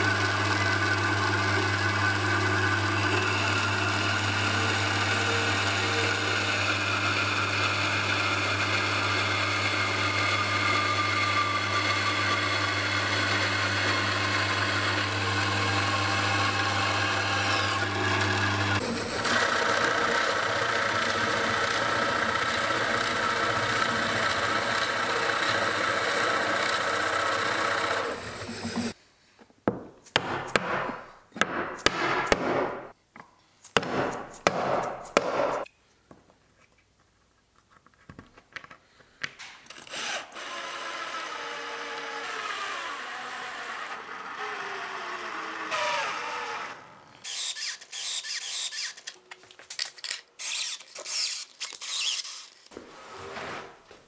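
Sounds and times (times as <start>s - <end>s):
bandsaw cutting metal: 0.0s - 29.0s, 39.7s - 49.2s, 50.0s - 52.8s
pillar drill boring into wood: 0.0s - 29.0s, 39.7s - 49.2s, 50.0s - 52.7s
cordless drill driving screws: 11.5s - 29.0s, 39.7s - 52.7s.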